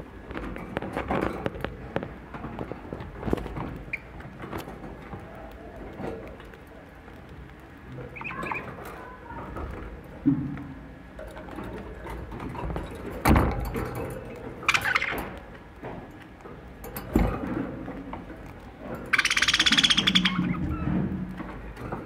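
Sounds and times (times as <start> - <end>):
budgerigar buzzing chatter: 19.1 - 20.6
budgerigar chirp: 19.2 - 20.6.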